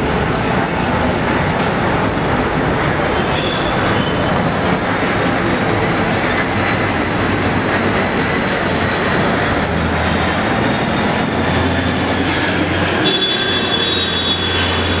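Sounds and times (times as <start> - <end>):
jet engine roar: 0.0 - 15.0.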